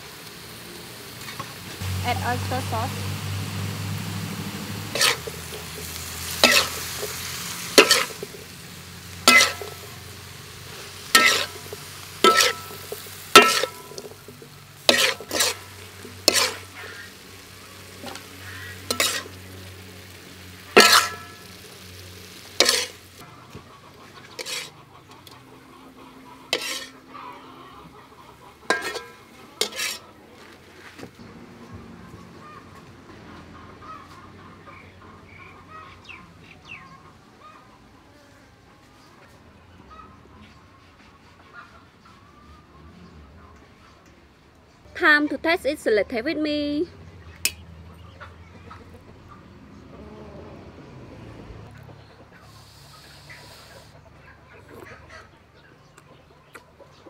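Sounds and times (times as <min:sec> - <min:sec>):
food sizzling: 0:00.0 - 0:30.1
metal spatula scraping a wok: 0:04.4 - 0:23.3, 0:23.9 - 0:28.0, 0:28.6 - 0:30.7.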